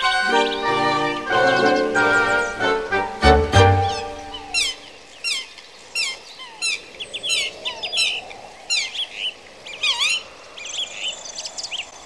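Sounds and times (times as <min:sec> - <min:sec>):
bird calls sweeping down: 0:03.7 - 0:04.9.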